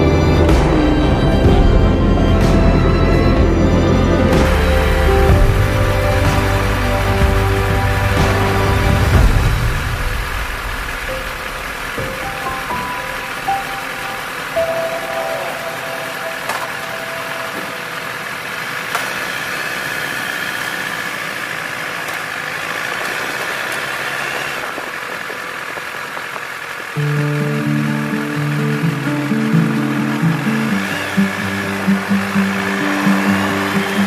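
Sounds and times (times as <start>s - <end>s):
music: 0.0s - 18.2s, 27.0s - 34.0s
motorcycle engine running: 0.0s - 34.0s.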